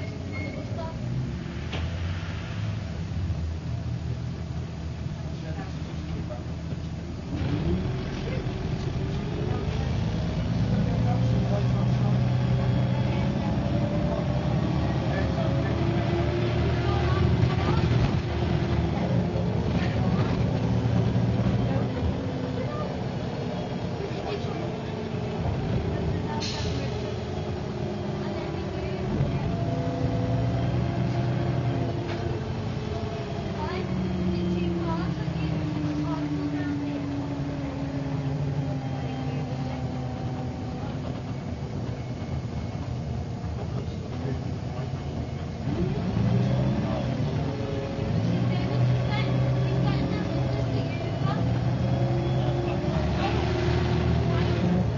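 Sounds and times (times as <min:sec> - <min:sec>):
bus diesel engine hum: 0:00.0 - 0:54.9.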